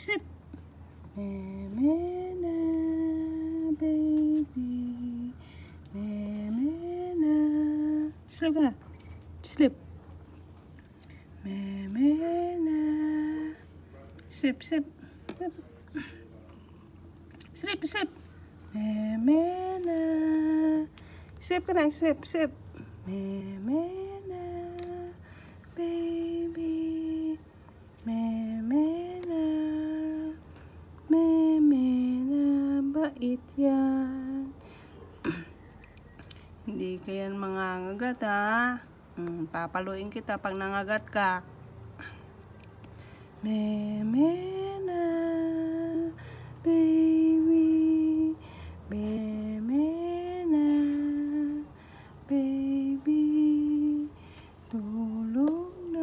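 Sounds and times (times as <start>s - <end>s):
woman humming a lullaby: 1.1s - 8.4s, 28.1s - 30.4s, 43.4s - 56.0s
woman humming: 1.2s - 8.2s, 35.2s - 35.6s.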